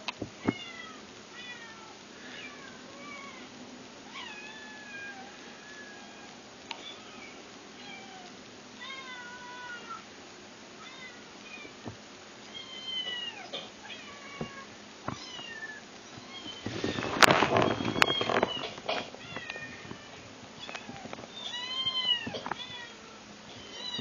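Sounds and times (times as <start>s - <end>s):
kittens mewing: 12.5s - 24.0s
clattering and rustling: 16.1s - 22.9s.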